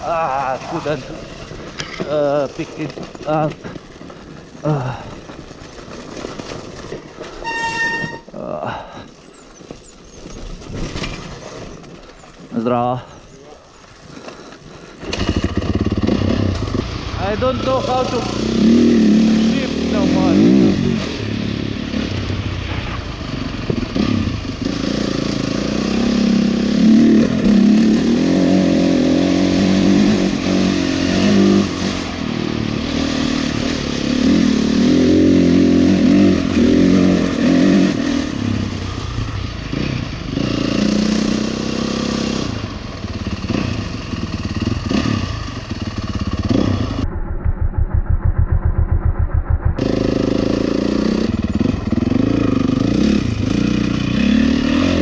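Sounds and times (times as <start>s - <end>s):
dirt bike engine revving: 15.0s - 55.0s.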